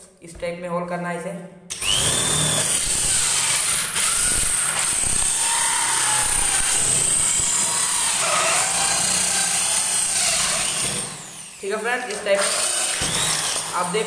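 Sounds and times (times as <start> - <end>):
electric drill motor whine: 1.7 - 11.7, 12.4 - 14.0
hole saw rasping through board: 1.8 - 11.6.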